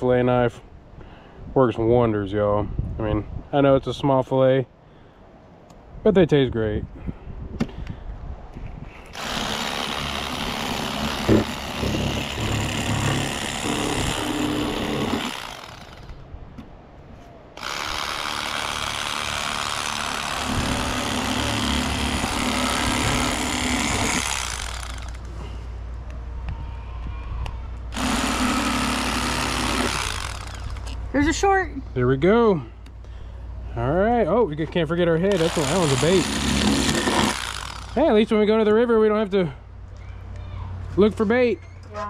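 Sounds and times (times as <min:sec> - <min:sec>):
electric knife buzzing: 0:09.2 - 0:16.1, 0:17.6 - 0:25.3, 0:27.9 - 0:31.0, 0:35.3 - 0:38.0.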